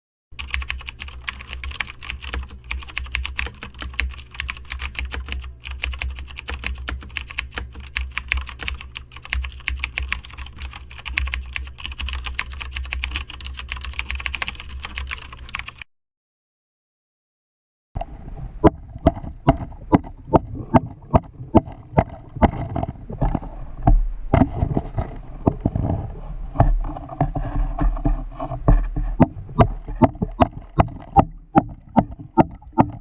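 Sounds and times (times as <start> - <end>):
steady low hum: 0.4 - 15.8, 18.0 - 33.0
keyboard typing: 0.4 - 15.9.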